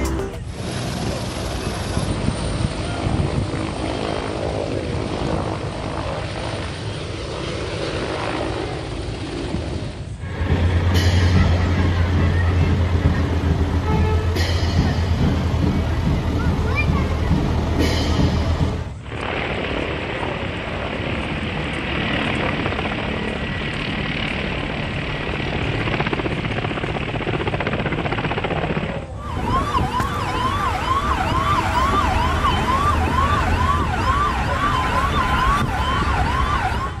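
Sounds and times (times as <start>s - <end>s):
helicopter engine and rotor: 0.0s - 19.5s, 20.1s - 37.0s
siren wailing: 29.2s - 37.0s.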